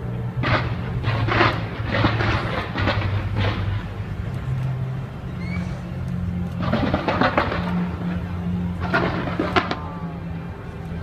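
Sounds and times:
fireworks low rumble: 0.0s - 11.0s
fireworks crackling bursts: 0.4s - 4.8s, 6.1s - 10.0s.

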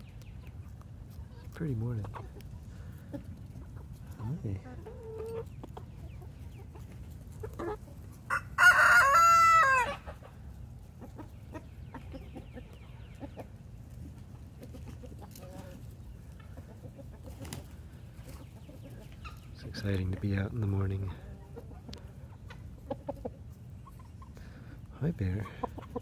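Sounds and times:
chickens clucking: 0.0s - 26.0s
rooster crowing: 8.3s - 10.1s.

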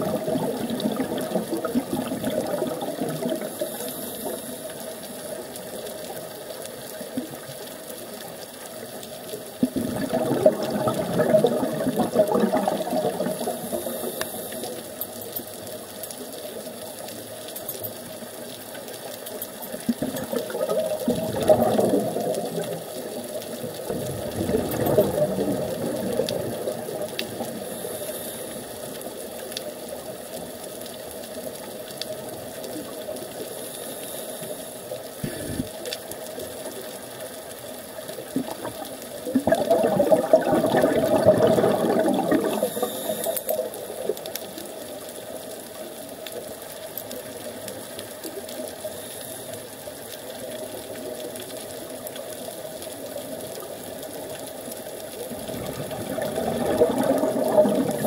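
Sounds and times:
scuba exhalation bubbles: 0.0s - 3.7s, 9.6s - 14.4s, 19.8s - 27.9s, 35.2s - 35.8s, 38.3s - 44.1s, 55.2s - 58.0s
muffled underwater hiss: 0.0s - 58.0s.

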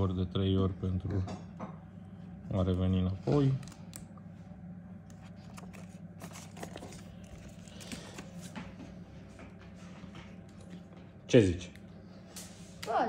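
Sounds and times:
steady low hum: 0.0s - 13.0s
paper and packaging rustling: 5.1s - 8.8s.

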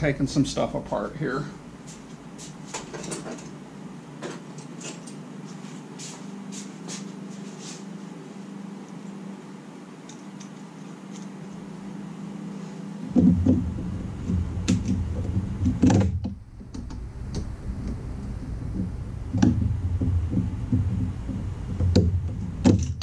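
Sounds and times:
low hum: 8.0s - 23.0s.

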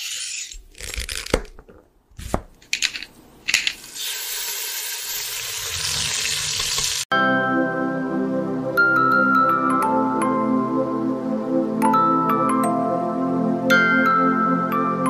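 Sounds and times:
soft music with sustained notes: 7.1s - 15.0s.

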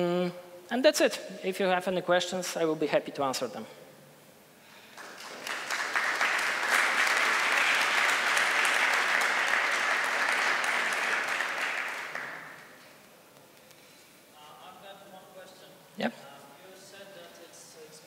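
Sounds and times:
audience applauding: 4.9s - 12.8s.

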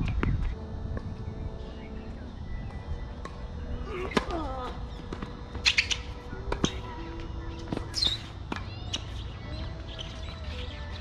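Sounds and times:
low wind rumble: 0.0s - 10.6s
birds squawking and chirping: 1.6s - 11.0s
tennis ball bouncing: 2.7s - 9.3s.

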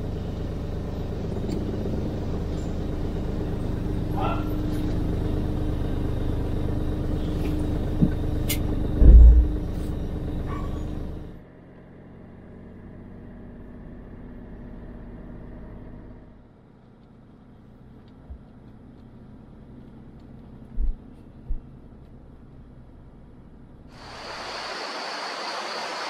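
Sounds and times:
engine and road rumble: 0.0s - 26.0s
heavy low thump: 9.0s - 9.8s.

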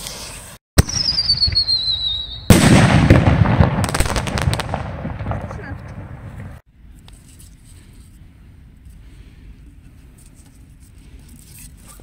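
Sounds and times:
firework whistling: 0.0s - 4.9s
crackling and sharp pops: 0.8s - 6.6s
firework bang: 0.8s - 6.6s
mortar shell launch crack: 2.5s - 5.4s.

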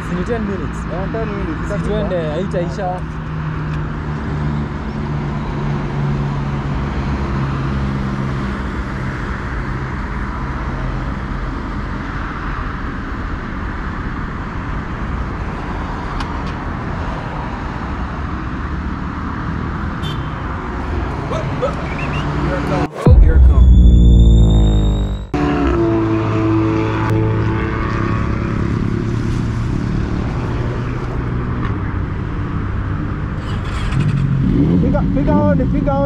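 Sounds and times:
wind and road noise: 0.0s - 36.0s
motorcycle engine at highway speed: 25.2s - 35.7s.

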